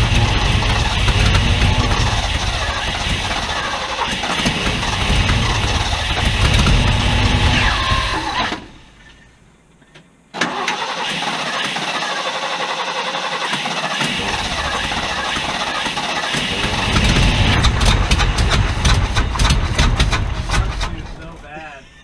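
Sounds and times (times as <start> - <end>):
starter cranking engine: 0.0 - 8.8, 10.4 - 21.4
sharp engine pops: 14.0 - 21.2.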